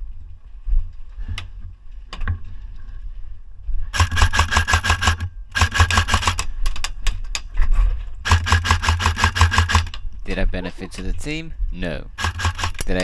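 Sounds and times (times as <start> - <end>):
airsoft rifle full-auto bursts: 3.9 - 6.5, 8.2 - 10.0, 12.2 - 13.0.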